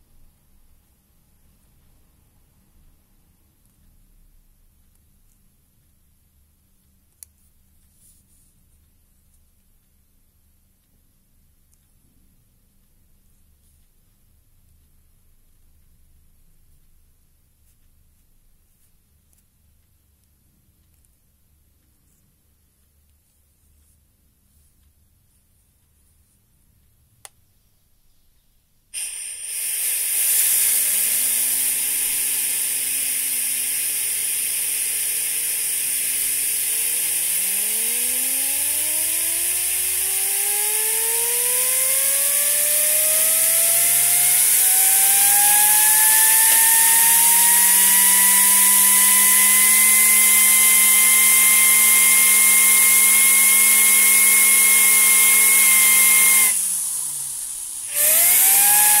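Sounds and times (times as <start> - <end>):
click: 4.8 - 6.0, 6.8 - 8.0, 11.6 - 14.0, 18.8 - 24.0, 26.8 - 27.4
loud hiss of air: 29.0 - 36.6, 40.2 - 59.0
rotary engine whine: 29.1 - 59.0.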